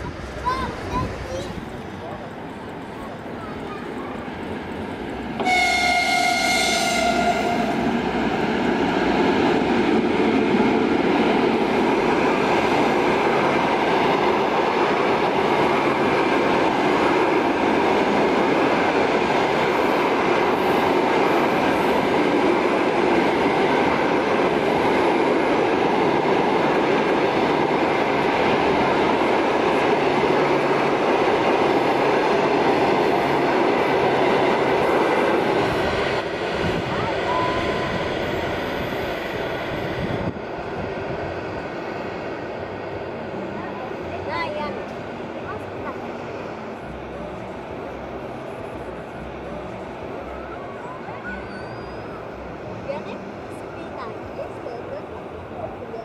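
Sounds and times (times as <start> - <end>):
train wheels on track: 0.0 - 56.0
locomotive horn: 5.4 - 7.9.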